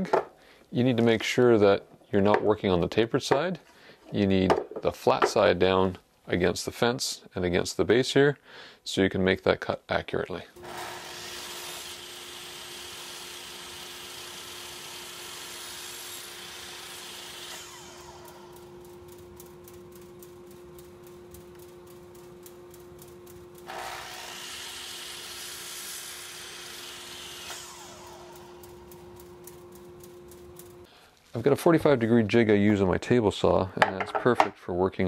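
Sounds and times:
miter saw cutting wood: 10.6s - 19.3s, 23.6s - 30.8s
saw blade spinning with rapid ticking: 10.6s - 30.9s.

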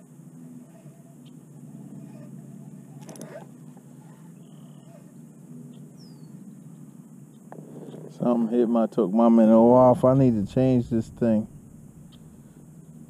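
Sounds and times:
fishing reel whirring: 1.8s - 5.1s.

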